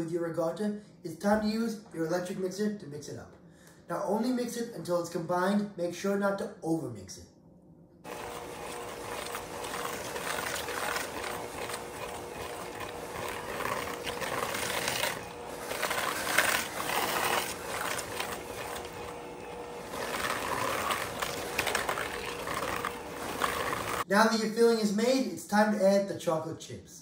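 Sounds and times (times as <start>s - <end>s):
electric hand mixer whining: 8.1s - 24.1s.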